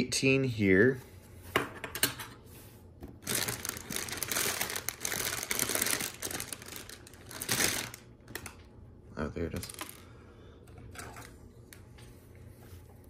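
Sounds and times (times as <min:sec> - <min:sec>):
plastic bags crinkling: 0:03.2 - 0:08.7, 0:09.5 - 0:10.2.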